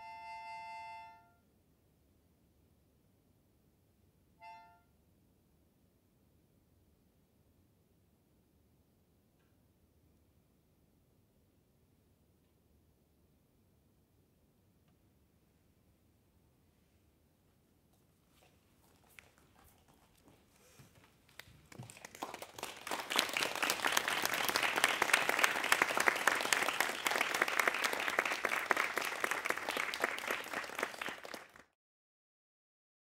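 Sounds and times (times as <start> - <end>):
audience applauding: 20.1 - 31.7.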